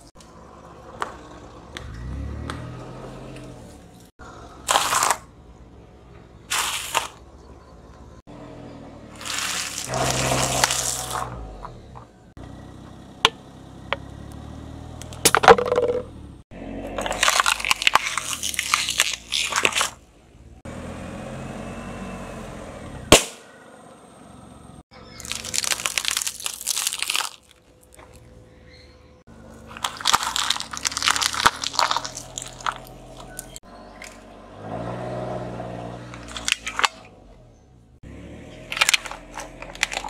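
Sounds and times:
car tyre crushing objects: 4.6s - 5.3s, 6.5s - 7.3s, 9.1s - 12.2s, 14.9s - 20.1s, 23.1s - 23.5s, 25.1s - 28.4s, 29.3s - 40.0s
snack puffs crunching: 9.2s - 11.3s, 16.9s - 20.0s, 25.2s - 28.3s, 29.5s - 34.2s, 36.2s - 37.0s, 38.7s - 40.0s.

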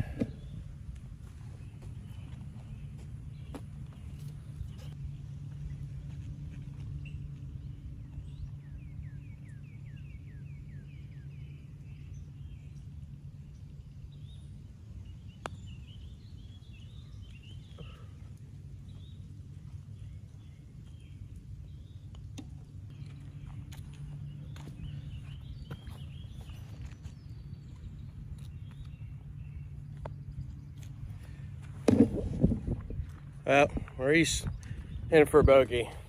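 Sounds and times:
birds chirping: 0.0s - 36.0s
low background hum: 0.0s - 36.0s
putter striking golf ball: 31.8s - 32.4s.

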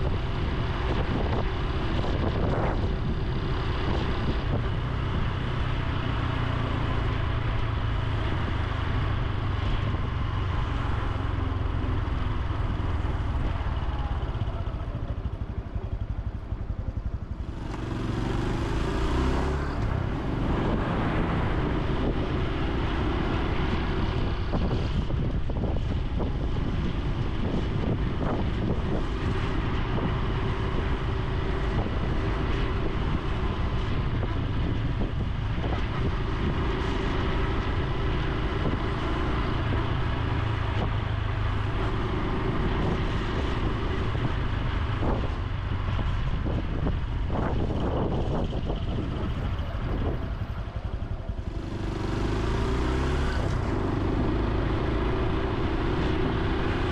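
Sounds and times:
wind on microphone: 0.0s - 5.9s, 17.0s - 56.9s
motorcycle engine running: 0.0s - 56.9s.

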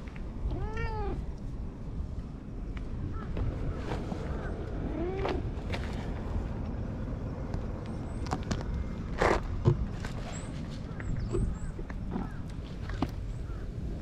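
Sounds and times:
steady low rumble: 0.0s - 14.0s
cat meowing: 0.5s - 1.2s.

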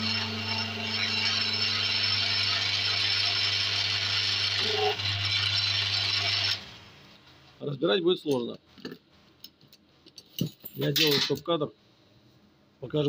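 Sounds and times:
electric machine humming and rattling: 0.0s - 6.8s.

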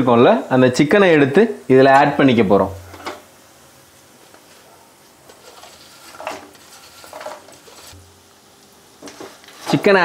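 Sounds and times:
faint sizzle: 0.0s - 10.0s
wooden spatula scraping a pan: 5.2s - 8.1s, 9.0s - 9.9s.

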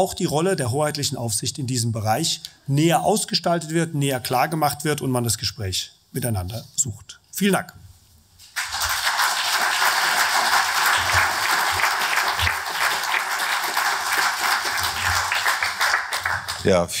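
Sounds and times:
audience applauding: 8.5s - 16.7s.

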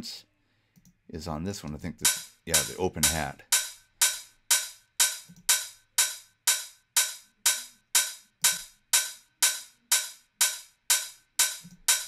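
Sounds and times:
open hi-hat pattern: 2.0s - 12.0s.

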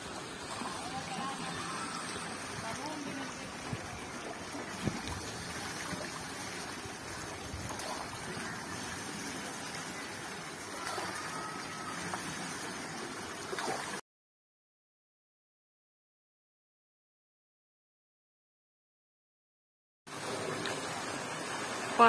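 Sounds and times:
stream water rushing and splashing: 0.0s - 14.0s, 20.1s - 22.0s
water trickling from buckets: 0.0s - 14.0s, 20.1s - 22.0s.

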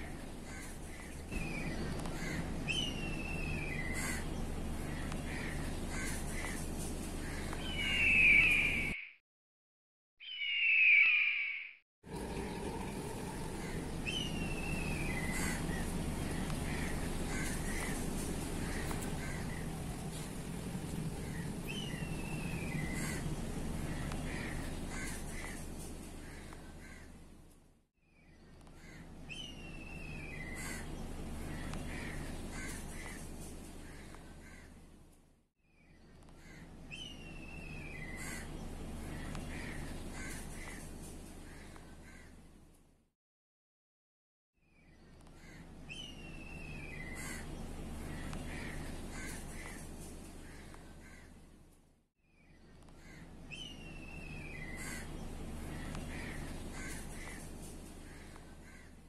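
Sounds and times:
bird whistling call: 7.6s - 9.2s, 10.2s - 11.8s
low background rumble: 12.1s - 35.3s, 44.8s - 59.0s.

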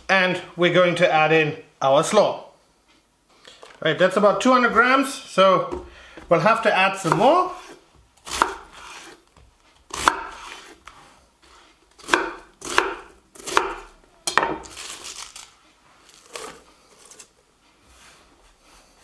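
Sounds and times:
knife chopping cabbage on board: 7.0s - 9.2s, 9.9s - 10.8s, 12.0s - 14.7s.

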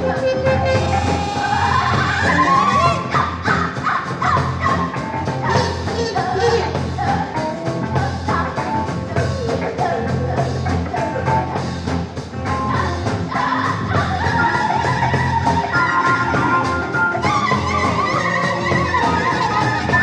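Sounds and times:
person singing: 0.0s - 11.6s
live rock band playing: 0.0s - 20.0s
percussion beat: 0.0s - 20.0s.

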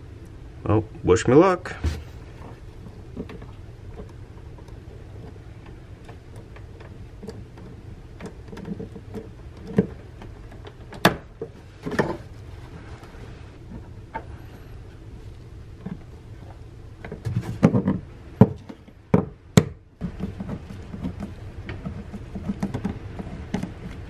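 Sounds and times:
steady low hum: 0.0s - 24.0s
clicks and taps on plastic fittings: 3.2s - 12.1s.

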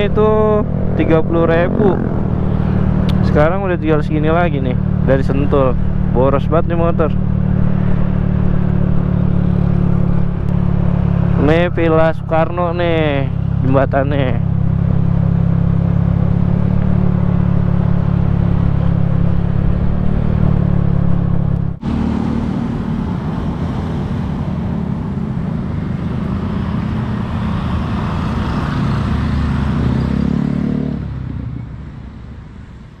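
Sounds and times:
wind and road noise: 0.0s - 33.0s
scooter engine running: 0.4s - 3.2s.

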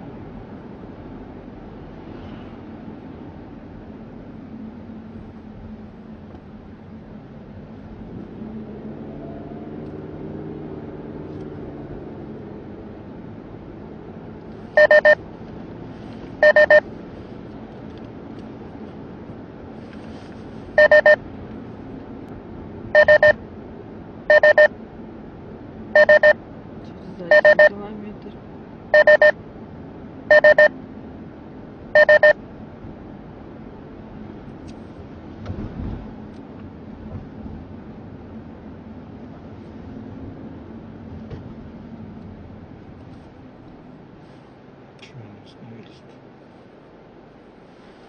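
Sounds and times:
car engine and road noise: 0.0s - 48.0s
short high warning beeps: 14.8s - 15.2s, 16.4s - 16.8s, 20.8s - 21.2s, 23.0s - 23.4s, 24.3s - 24.7s, 26.0s - 26.4s, 27.3s - 27.8s, 28.9s - 29.4s, 30.3s - 30.7s, 32.0s - 32.4s.

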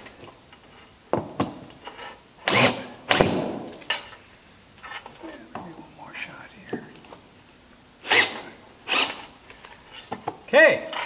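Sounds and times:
cordless drill driving screws: 2.4s - 3.4s, 8.0s - 9.3s.

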